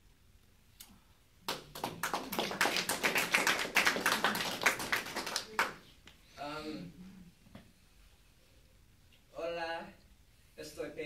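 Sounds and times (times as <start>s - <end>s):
audience applauding: 1.5s - 5.8s.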